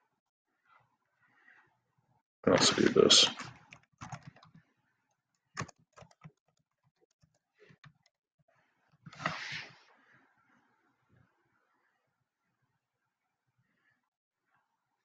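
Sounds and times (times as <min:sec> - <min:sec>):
computer keyboard typing: 0:03.4 - 0:04.6, 0:05.6 - 0:08.1.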